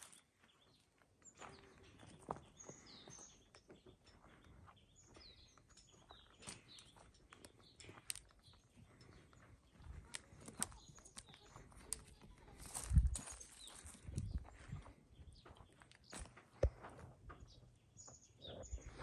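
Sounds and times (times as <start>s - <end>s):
small birds chirping: 0.0s - 19.0s
goat hooves clicking on stones: 5.8s - 14.4s.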